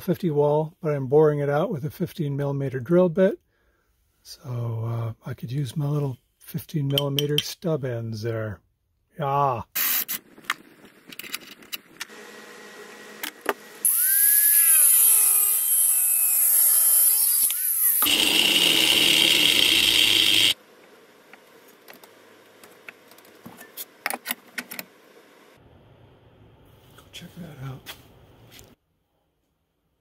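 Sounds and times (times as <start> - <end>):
grinder grinding steel: 12.0 - 20.6.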